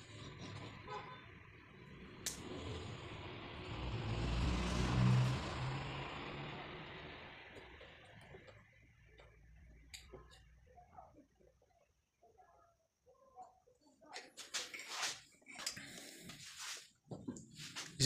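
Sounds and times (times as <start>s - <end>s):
motor vehicle passing by: 0.0s - 9.9s.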